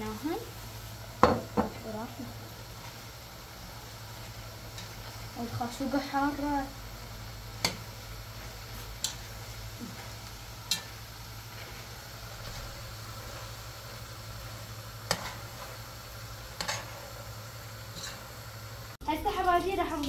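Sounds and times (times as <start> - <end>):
metal spoon stirring a pot: 7.6 - 11.8, 16.6 - 17.1, 17.9 - 18.3.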